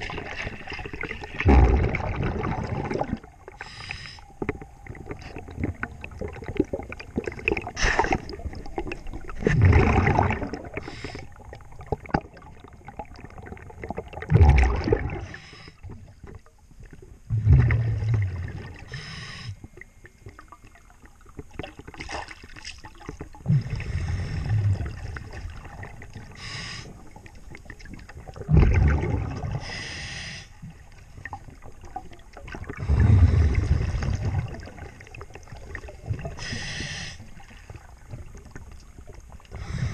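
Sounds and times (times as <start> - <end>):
exhaled bubbles gushing: 0.0 - 3.7, 4.4 - 16.4, 17.3 - 19.0, 20.3 - 29.7, 31.1 - 36.6
regulator inhale hiss: 3.6 - 4.3, 10.8 - 11.4, 15.2 - 15.9, 18.9 - 19.6, 26.3 - 27.0, 29.6 - 30.6, 36.4 - 37.4, 39.6 - 39.9.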